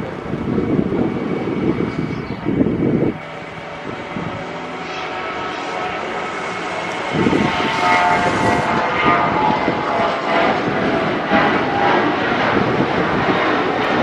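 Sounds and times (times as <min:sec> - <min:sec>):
jet engines at takeoff: 0:00.0 - 0:14.0.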